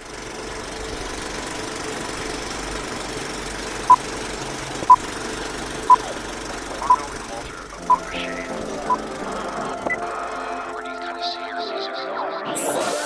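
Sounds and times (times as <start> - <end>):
film projector rattling: 0.0 - 8.0.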